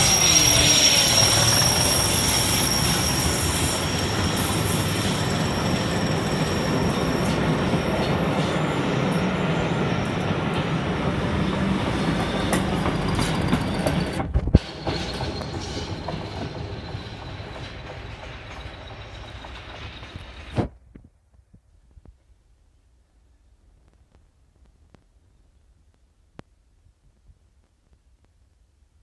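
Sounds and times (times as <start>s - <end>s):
high wheel squeal: 0.0s - 20.7s
train wheels clattering on rails: 0.0s - 20.8s.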